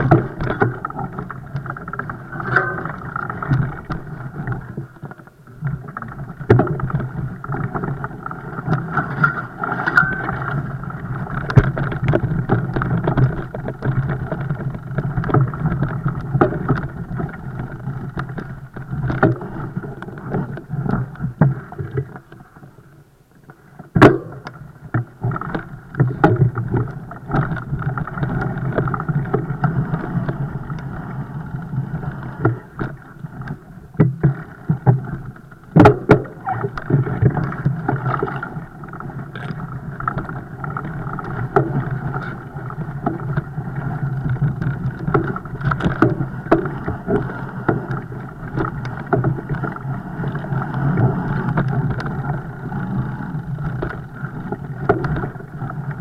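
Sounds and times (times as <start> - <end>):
bike knocks and rattles: 0.0 - 4.8, 6.4 - 19.5, 23.9 - 30.4, 34.0 - 38.6
bike rumbling over rough ground: 0.0 - 56.0.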